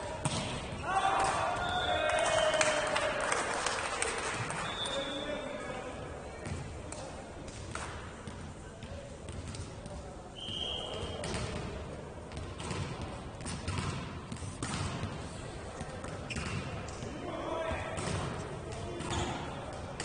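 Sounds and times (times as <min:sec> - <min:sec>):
referee whistle blast: 0:10.4 - 0:11.2.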